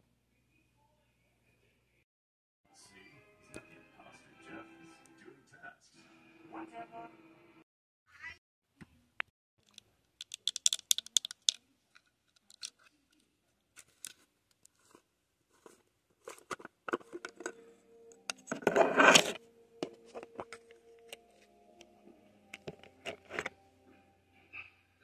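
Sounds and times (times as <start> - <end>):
plastic tub clicking and scratching: 9.6 - 11.6, 15.6 - 17.6, 18.3 - 20.6, 22.6 - 23.5
lid twisting off scrape: 18.3 - 20.7, 22.6 - 23.5.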